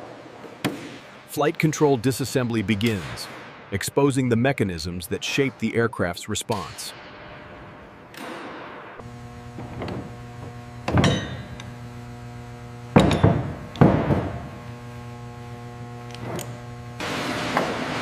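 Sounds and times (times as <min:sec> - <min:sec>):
steady low hum: 0:00.0 - 0:17.6
metal tools clanking: 0:11.0 - 0:11.6.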